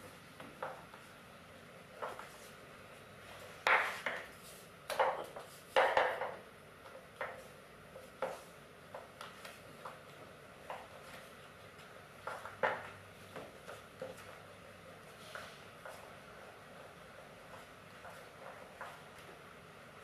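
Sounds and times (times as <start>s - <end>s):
rolling pin on wooden table: 3.6s - 6.4s.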